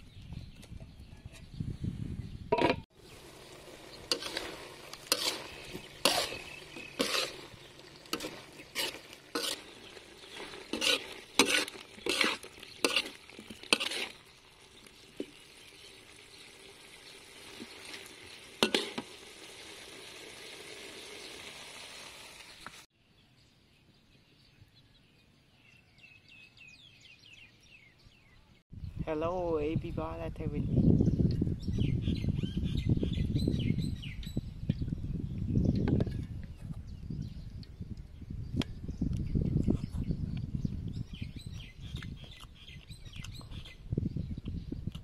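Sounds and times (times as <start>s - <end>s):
food sizzling: 2.9s - 22.9s
utensil scraping a wok: 3.1s - 15.6s, 17.1s - 22.9s.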